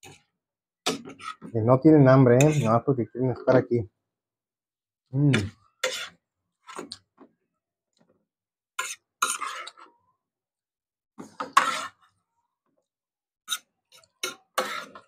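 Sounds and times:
fork scraping on plate: 0.9s - 1.5s, 2.3s - 2.8s, 5.3s - 7.0s, 8.7s - 10.0s, 11.2s - 12.2s, 13.4s - 15.0s.

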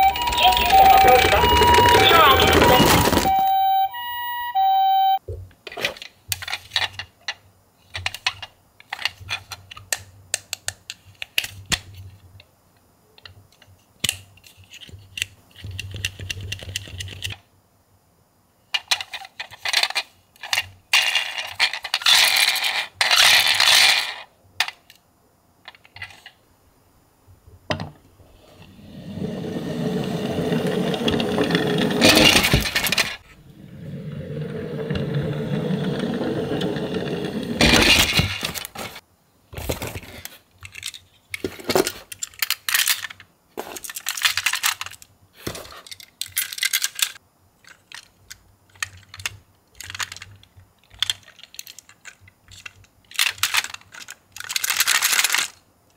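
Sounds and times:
toy parts rattling: 18.7s - 25.0s, 40.6s - 45.1s, 45.8s - 55.6s
small plastic and metal parts clicking: 40.6s - 45.1s, 45.8s - 55.6s.

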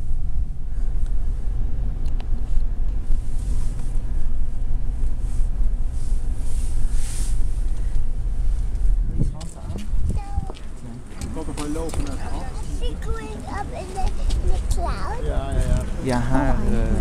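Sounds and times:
car engine rumble inside cabin: 0.0s - 17.0s.

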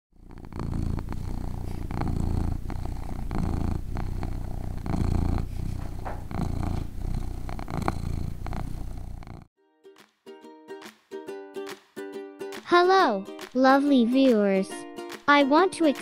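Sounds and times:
cat purring: 0.1s - 9.5s.

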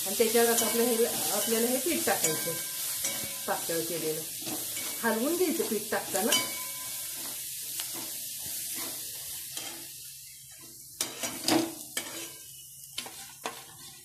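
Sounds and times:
food sizzling in oil: 0.0s - 14.0s
metal spatula scraping a pan: 0.2s - 14.0s
spoon clinking on steel: 0.5s - 3.5s, 6.1s - 7.0s.

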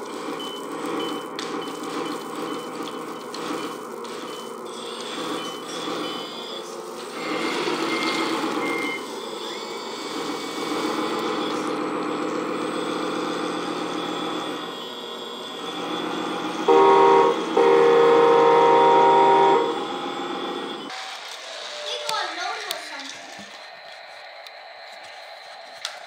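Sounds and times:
toy motors whirring: 0.0s - 16.6s, 20.8s - 26.0s
truck horn blasts: 16.6s - 20.2s.

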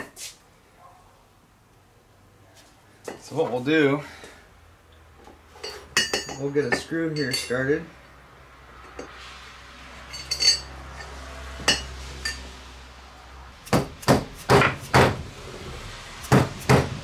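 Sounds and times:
light metal clinks: 5.6s - 7.8s, 10.1s - 12.5s.

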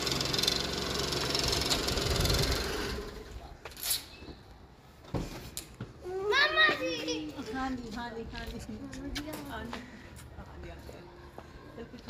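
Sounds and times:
small car engine idling: 0.0s - 3.4s.

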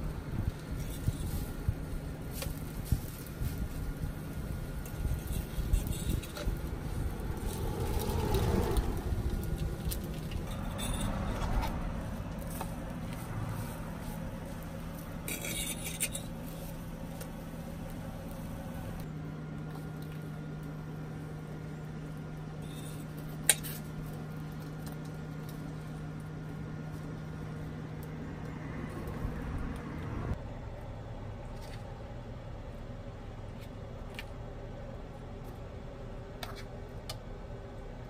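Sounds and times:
low hum: 0.0s - 38.0s
metal fork scraping on griddle: 4.8s - 6.6s, 10.3s - 11.8s, 15.2s - 16.8s, 22.6s - 23.9s.

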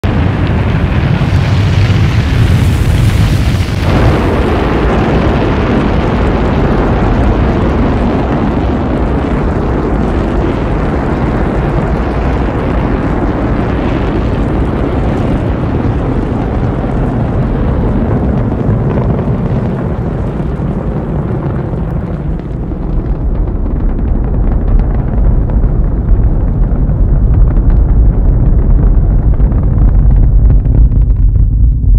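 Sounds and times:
rocket engines crackling rumble: 0.0s - 31.9s.

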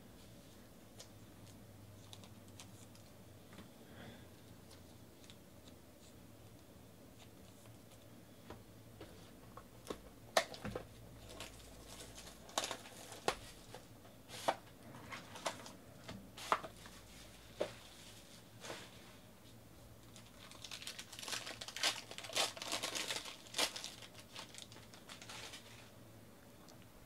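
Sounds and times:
foil wrapper crinkling: 11.2s - 13.8s, 20.0s - 25.9s.

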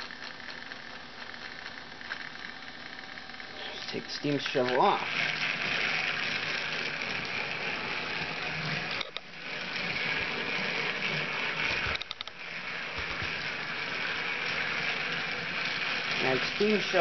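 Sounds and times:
toy train motor whirring: 0.0s - 17.0s
clicks: 9.0s - 9.3s, 11.9s - 12.4s.

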